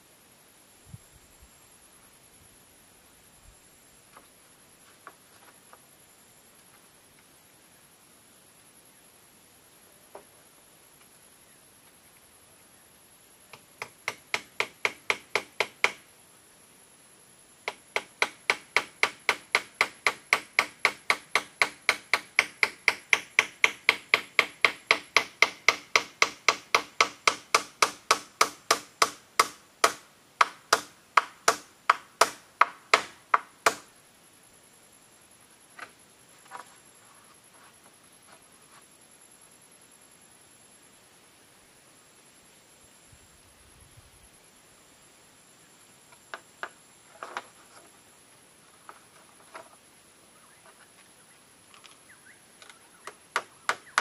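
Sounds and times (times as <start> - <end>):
hammer striking bamboo: 13.5 - 16.0, 17.7 - 33.9, 53.3 - 54.0.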